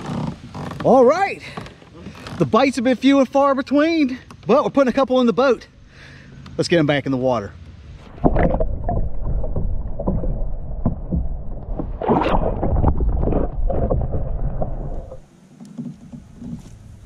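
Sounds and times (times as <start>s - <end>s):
water splash: 8.0s - 15.3s
muffled underwater water churning: 8.0s - 15.4s.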